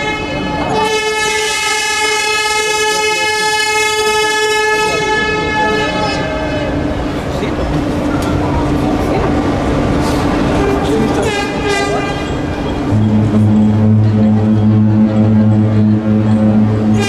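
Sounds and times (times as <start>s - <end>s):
ship horn blasts: 0.0s - 7.2s, 10.6s - 17.0s.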